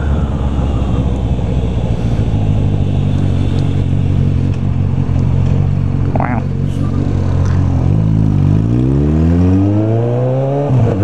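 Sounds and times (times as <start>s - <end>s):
motorcycle engine cruising: 0.0s - 11.0s
road noise: 0.0s - 11.0s.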